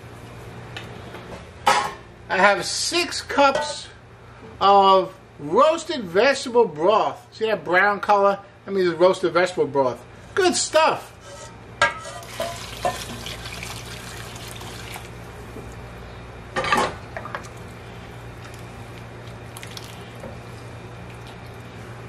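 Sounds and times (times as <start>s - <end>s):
broth splashing and sizzling: 12.2s - 15.3s, 17.5s - 21.8s.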